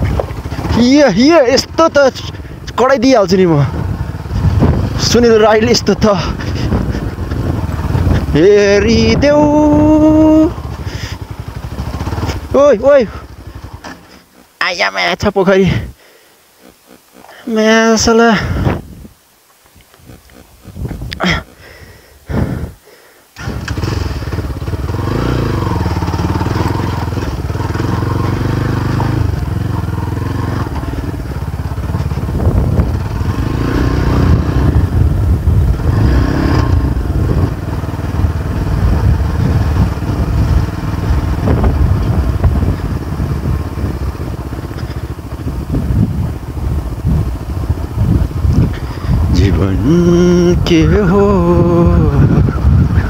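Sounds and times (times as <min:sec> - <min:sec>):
motorcycle engine running: 0:00.0 - 0:18.9, 0:20.0 - 0:22.8, 0:23.4 - 0:53.0.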